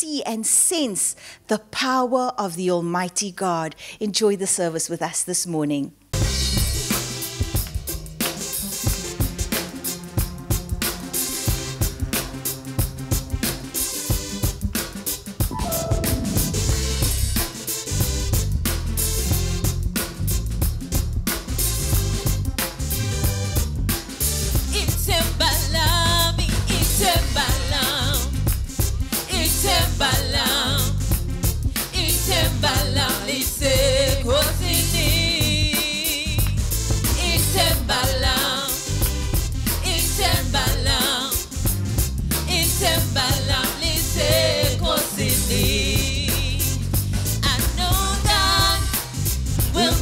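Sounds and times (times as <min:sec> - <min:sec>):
drum kit beat: 0:06.2 - 0:50.0
keyboard: 0:15.4 - 0:17.9
gospel band with keyboard: 0:15.5 - 0:17.7, 0:42.5 - 0:50.0
woman singing with vibrato: 0:42.5 - 0:46.7, 0:47.4 - 0:49.0, 0:49.7 - 0:50.0.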